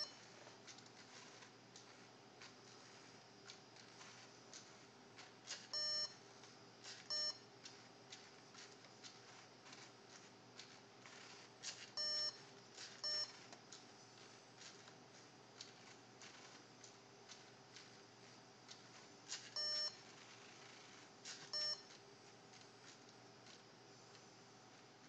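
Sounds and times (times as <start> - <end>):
electronic beeps: 0.0 - 0.2, 5.7 - 6.2, 7.0 - 7.5, 12.0 - 12.4, 13.0 - 13.4, 19.6 - 20.0, 21.5 - 21.9
faint irregular clicking: 0.0 - 24.9.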